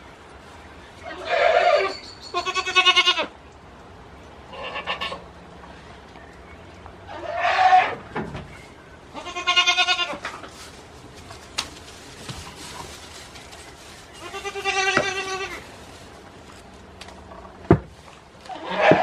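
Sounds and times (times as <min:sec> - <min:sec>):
goats bleating: 0:09.2 - 0:10.2, 0:14.2 - 0:15.6, 0:18.5 - 0:19.0.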